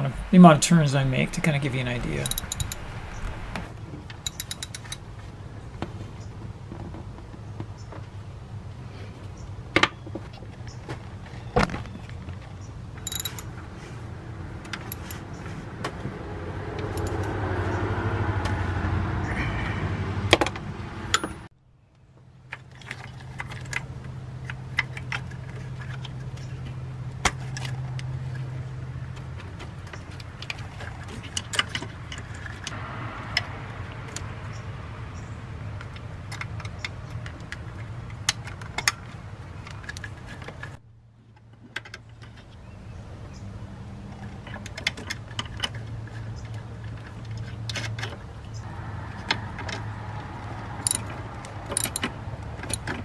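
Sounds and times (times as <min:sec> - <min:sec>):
metal hand tools clinking: 0:01.4 - 0:03.3, 0:04.2 - 0:05.0, 0:13.0 - 0:13.6, 0:14.8 - 0:15.2, 0:16.8 - 0:17.3, 0:50.8 - 0:51.1, 0:51.7 - 0:52.9
socket wrench clicking: 0:02.2 - 0:03.3, 0:04.2 - 0:05.0, 0:13.0 - 0:13.5, 0:14.7 - 0:15.2, 0:16.8 - 0:17.3, 0:50.8 - 0:51.1, 0:51.7 - 0:52.9.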